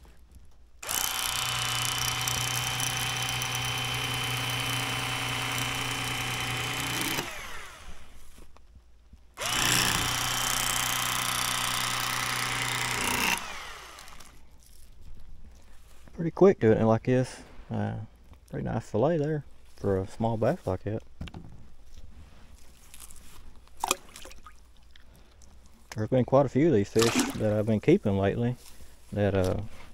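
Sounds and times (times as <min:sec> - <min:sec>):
electric fillet knife buzzing: 0:00.8 - 0:08.2, 0:09.4 - 0:14.4.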